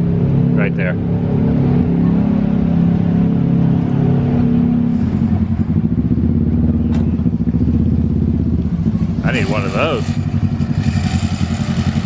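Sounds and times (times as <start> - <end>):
vehicle engine idling: 3.8 - 12.0.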